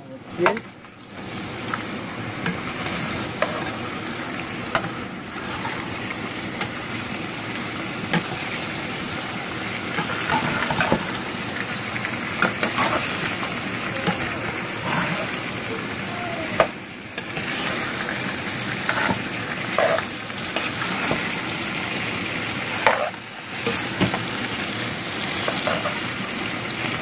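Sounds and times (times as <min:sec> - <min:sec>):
meat sizzling in metal pot: 0:00.1 - 0:27.0
utensil scraping and knocking pot: 0:02.5 - 0:03.8, 0:12.4 - 0:13.2, 0:18.7 - 0:21.4, 0:22.8 - 0:24.2, 0:25.4 - 0:26.0.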